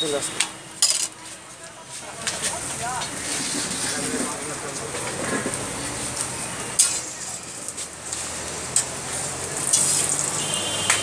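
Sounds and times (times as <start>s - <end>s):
flatbread sizzling in oil: 6.8s - 11.0s.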